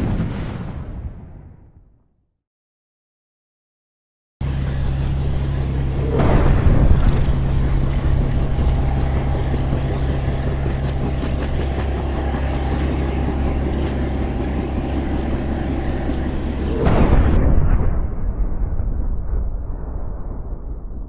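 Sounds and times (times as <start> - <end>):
explosion blast: 0.0 - 2.1, 6.0 - 11.6, 14.8 - 21.0
loud low engine drone: 4.4 - 20.3.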